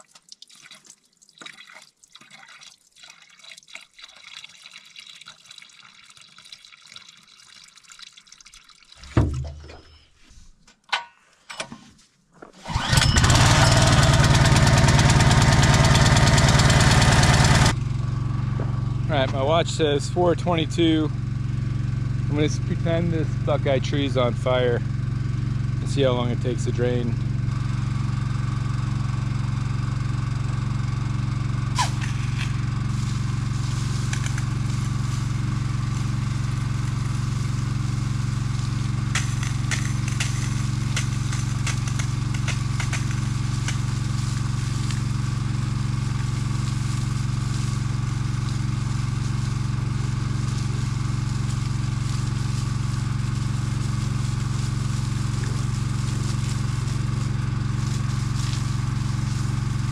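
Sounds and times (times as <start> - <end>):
water pumping through hose: 12.6 - 17.8, 31.7 - 59.9
engine running steadily: 12.7 - 59.9.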